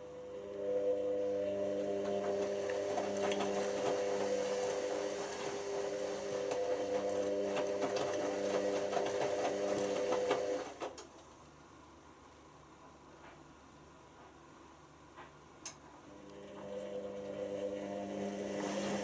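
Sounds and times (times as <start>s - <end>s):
washing machine motor whining: 0.0s - 11.0s, 16.0s - 19.0s.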